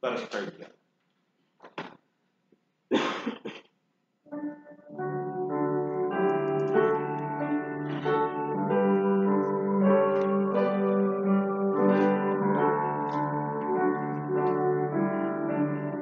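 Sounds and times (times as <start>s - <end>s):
keyboard playing sustained chords: 4.3s - 16.0s.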